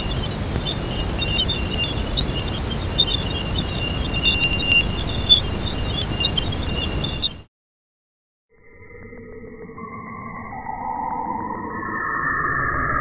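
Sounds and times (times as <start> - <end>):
crackling pops: 0.0 - 3.7
rushing hiss over deep rumble: 0.0 - 6.3.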